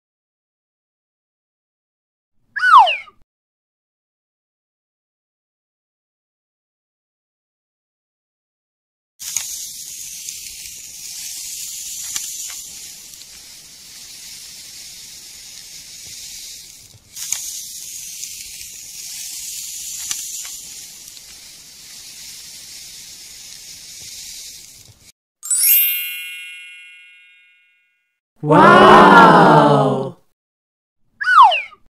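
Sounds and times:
sand being scooped and poured: 9.2 - 25.1.

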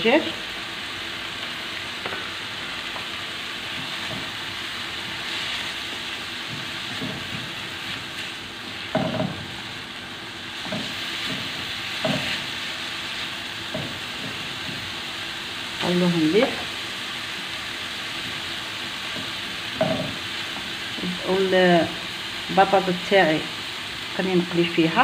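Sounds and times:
onions sizzling in oil: 0.0 - 25.0
spatula knocking and scraping pan: 3.7 - 4.4, 5.0 - 9.7, 10.6 - 12.7, 13.6 - 15.0, 19.0 - 20.3.

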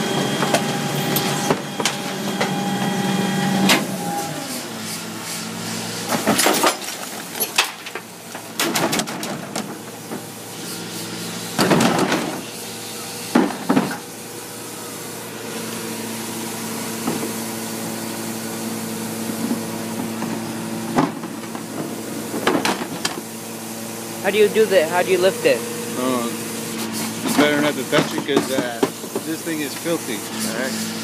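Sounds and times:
truck machinery humming: 0.0 - 31.0
garbage falling into hopper: 6.1 - 9.9
bins knocking and clattering: 6.1 - 10.2, 11.6 - 12.4, 19.5 - 23.2, 27.3 - 29.4.

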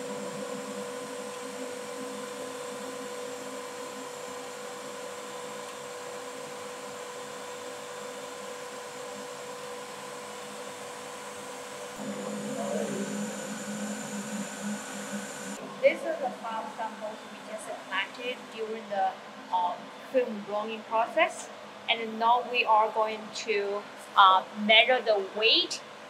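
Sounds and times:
machine whine: 0.0 - 20.0.

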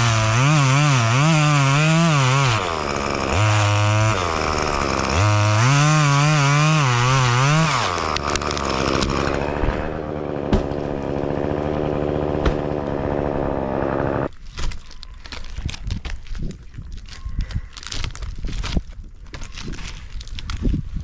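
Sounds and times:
chainsaw revving and idling: 0.0 - 14.3.

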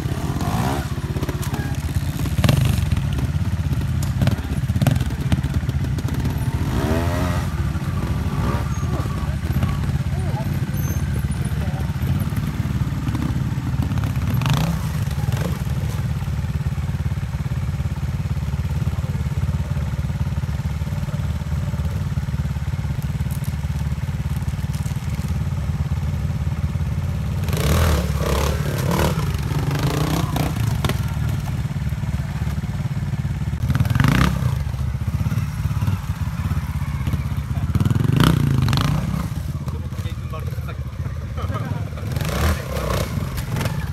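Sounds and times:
motorcycle engine at low revs: 0.0 - 43.9.

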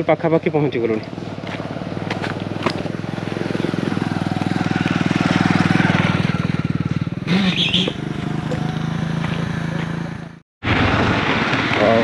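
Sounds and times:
motorbike engine running: 1.0 - 10.4.

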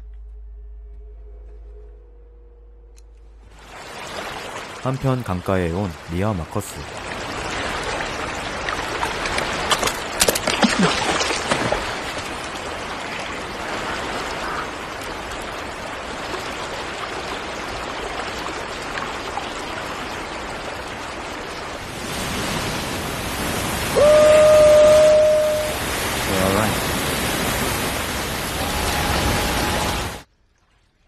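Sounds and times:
water splashing and dripping: 3.4 - 31.0
river water rushing: 3.5 - 30.3
waterfall rushing: 10.8 - 30.3
man shouting: 23.9 - 25.8.

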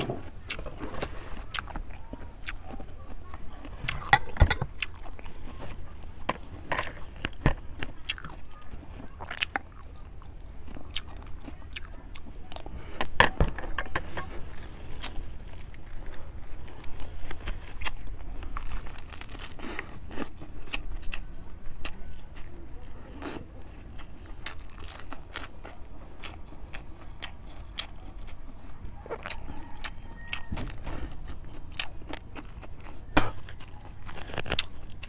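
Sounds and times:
chewing and crunching: 0.0 - 35.0
crunchy bite into lettuce: 15.0 - 21.2, 29.0 - 35.0.

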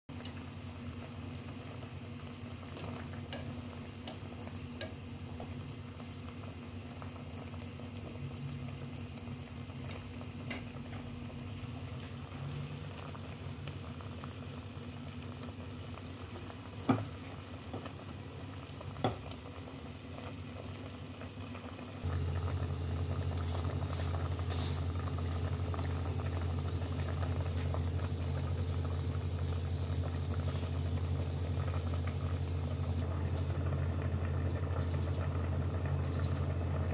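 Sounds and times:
broth bubbling in a pot: 0.1 - 36.9
low steady hum: 0.1 - 36.9.

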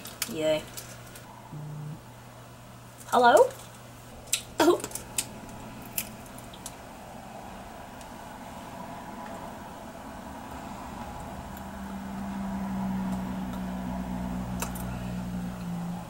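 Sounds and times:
low motor hum: 1.3 - 2.8, 5.0 - 16.0.

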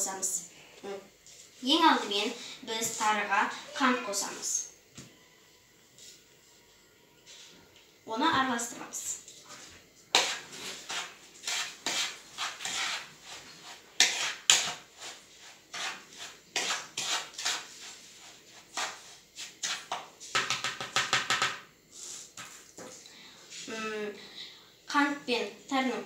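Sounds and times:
spoon scraping plastic bowl: 9.6 - 20.7.

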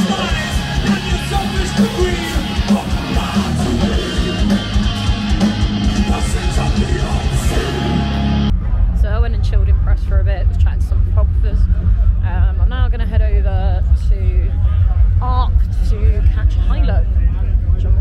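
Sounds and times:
person singing: 0.0 - 4.8, 5.9 - 8.1
live band heavy guitar music: 0.0 - 8.8.

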